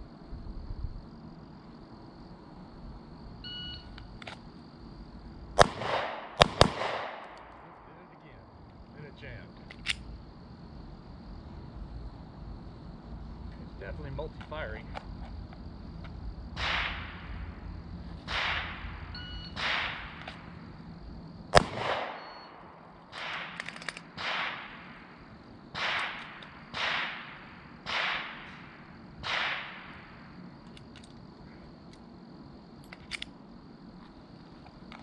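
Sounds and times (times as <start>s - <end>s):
pistol shots: 5.6s - 8.2s, 16.6s - 17.5s, 18.2s - 20.6s, 21.5s - 30.3s.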